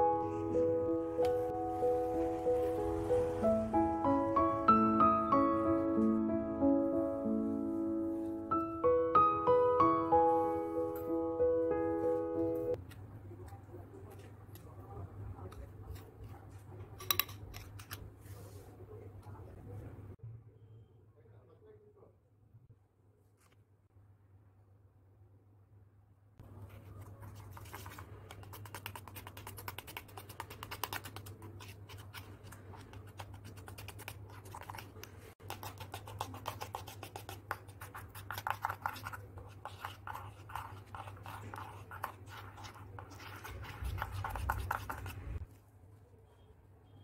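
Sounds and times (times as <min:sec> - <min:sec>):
wooden spoon beating batter: 0:26.6 - 0:45.4.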